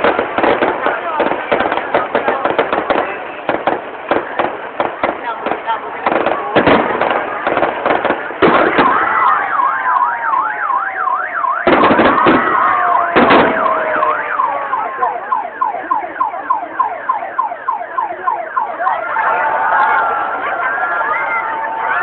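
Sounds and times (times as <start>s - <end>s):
fireworks bangs: 0.0s - 22.0s
siren yelping: 8.6s - 22.0s.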